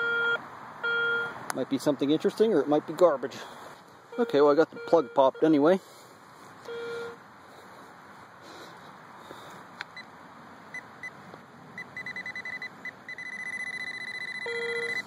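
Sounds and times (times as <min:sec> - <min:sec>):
lower detector tone: 0:00.0 - 0:01.3, 0:04.1 - 0:05.6, 0:06.6 - 0:07.2, 0:11.8 - 0:15.0
metal detector pinpointer beeping: 0:00.0 - 0:01.3, 0:04.1 - 0:05.6, 0:06.6 - 0:07.2, 0:11.8 - 0:15.0
continuous detector tone: 0:00.0 - 0:01.4, 0:04.1 - 0:05.8, 0:06.6 - 0:07.2, 0:11.8 - 0:15.0.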